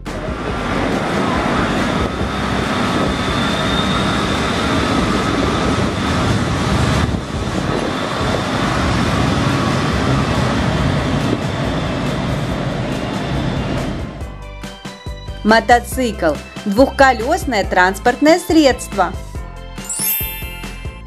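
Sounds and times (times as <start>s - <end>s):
tram wheels rumbling on rails: 0.0s - 14.2s.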